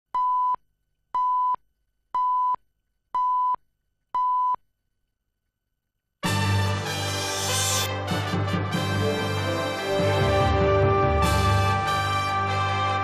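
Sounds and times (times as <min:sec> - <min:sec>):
music: 0:06.2 - 0:13.0.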